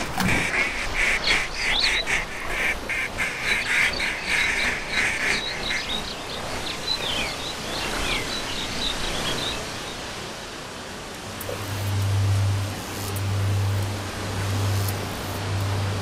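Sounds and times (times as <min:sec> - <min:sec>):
ducks quacking: 0:00.0 - 0:07.1
small birds chirping: 0:00.4 - 0:10.2
background hiss: 0:09.6 - 0:16.0.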